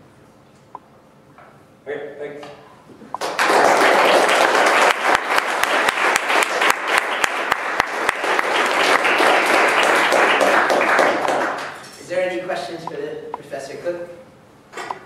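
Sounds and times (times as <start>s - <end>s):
audience applauding: 3.2s - 11.8s
single sharp claps: 3.2s - 11.8s.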